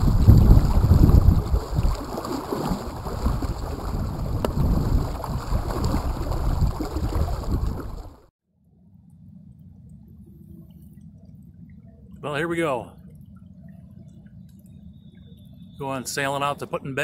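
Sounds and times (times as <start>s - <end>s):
water rushing along hull: 0.0s - 8.3s, 10.1s - 17.0s
wind buffeting microphone: 0.0s - 8.3s.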